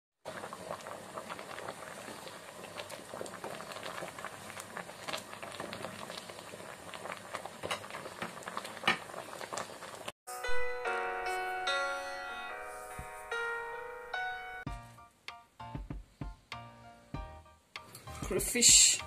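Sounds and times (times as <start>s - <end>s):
thick soup boiling and bubbling: 0.2s - 10.2s
piano music: 10.3s - 19.0s.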